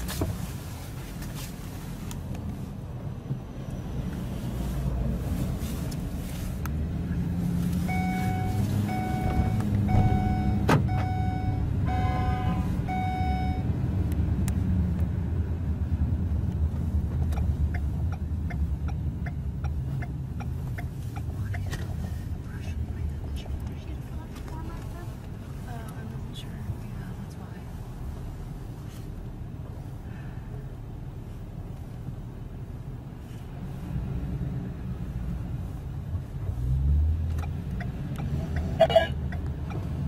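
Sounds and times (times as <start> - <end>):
van engine and road rumble: 0.0 - 40.0
beeps: 7.9 - 13.7.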